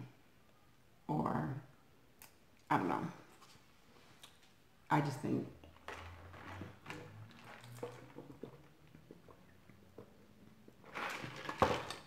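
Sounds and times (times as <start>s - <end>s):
paper cup rustle: 5.6s - 12.0s.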